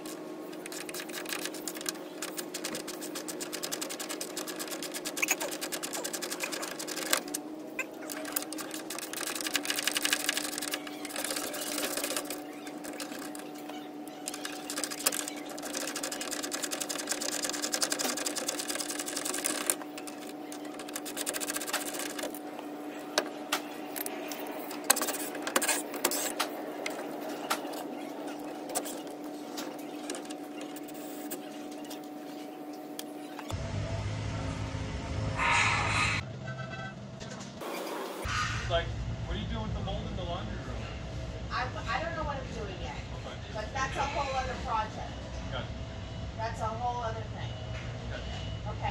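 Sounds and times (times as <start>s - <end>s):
steady hum: 0.0s - 36.3s.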